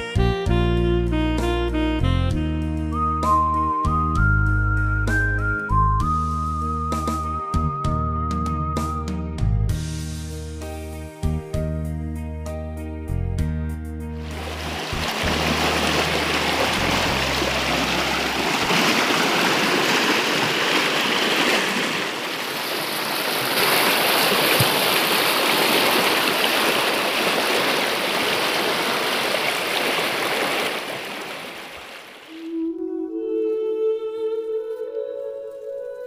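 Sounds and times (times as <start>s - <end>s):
stream rushing over rocks: 14.2s - 32.4s.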